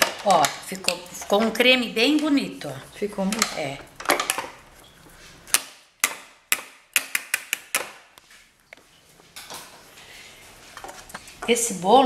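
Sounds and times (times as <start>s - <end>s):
handling noise: 0.0s - 6.1s.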